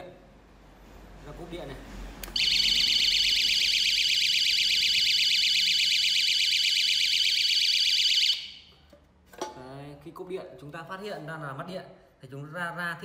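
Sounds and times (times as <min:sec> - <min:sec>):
warbling electronic alarm siren: 0:02.4 - 0:08.7.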